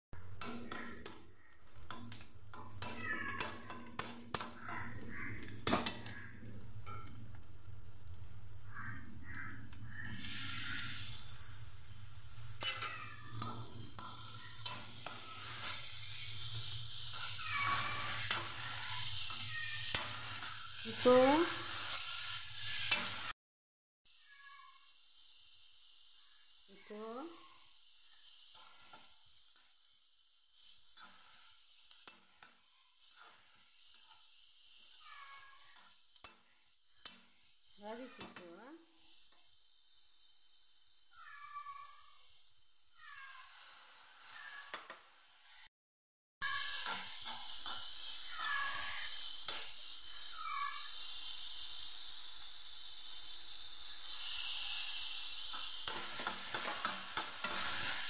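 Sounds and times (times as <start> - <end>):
food sizzling in hot oil: 0.2 - 23.4, 24.1 - 45.7, 46.4 - 58.0
spatula scraping pan: 0.4 - 7.5, 8.9 - 23.3, 30.6 - 39.5, 46.4 - 49.8, 54.2 - 58.0.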